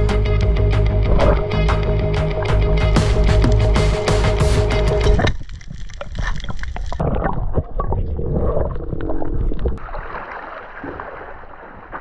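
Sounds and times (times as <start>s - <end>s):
underwater clicks and crackles: 4.8s - 9.8s
underwater rumble of moving water: 5.0s - 12.0s.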